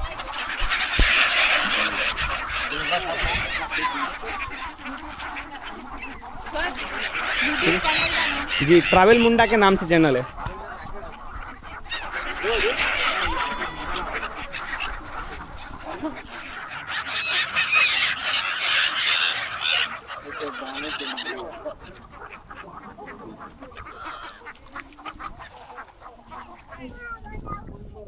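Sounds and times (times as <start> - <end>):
flock of waterbirds calling: 0.0 - 28.0.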